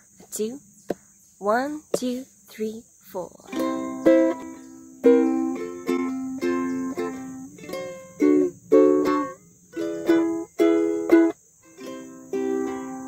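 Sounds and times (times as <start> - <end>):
acoustic string instrument strumming: 3.5 - 13.0.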